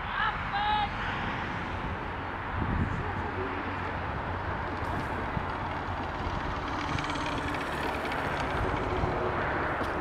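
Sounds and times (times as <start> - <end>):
zip-line trolley rattling on cable: 3.8 - 10.0
pulley wheels ticking: 4.7 - 10.0.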